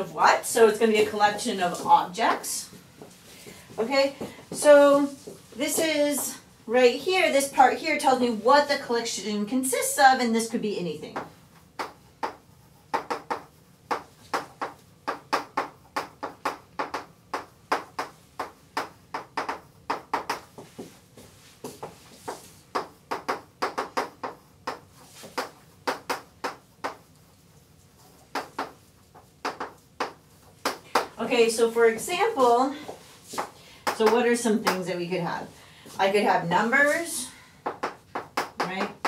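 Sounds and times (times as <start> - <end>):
chalk tapping and scratching on blackboard: 11.1 - 34.9, 36.1 - 39.0.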